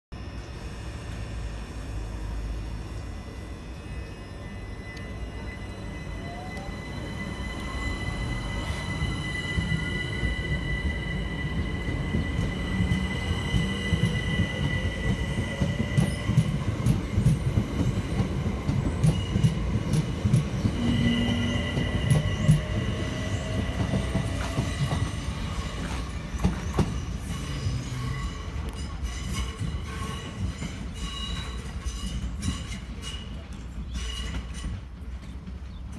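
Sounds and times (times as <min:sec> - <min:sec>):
electric train motor whine: 0:00.2 - 0:26.3.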